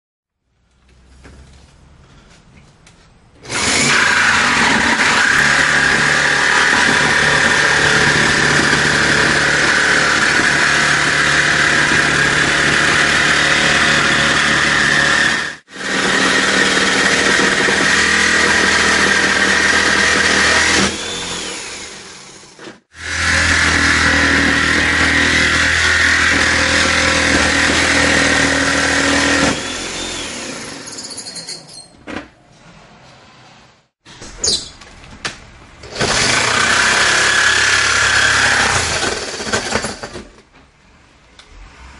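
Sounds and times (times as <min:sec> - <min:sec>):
electric power saw cutting wood: 0:03.4 - 0:31.0, 0:35.8 - 0:40.3.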